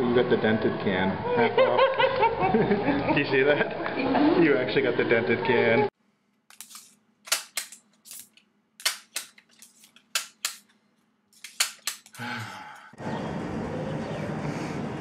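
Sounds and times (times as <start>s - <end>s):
scissors snipping: 6.5s - 10.7s, 11.4s - 12.2s.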